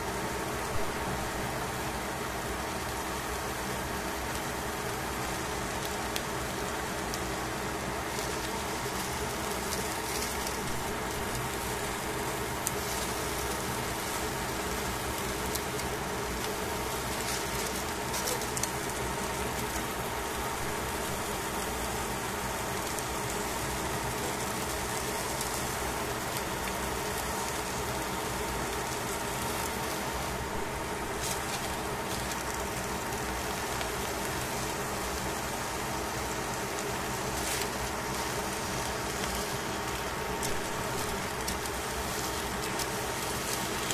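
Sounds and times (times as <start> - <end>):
fish sizzling in a frying pan: 0.0 - 43.9.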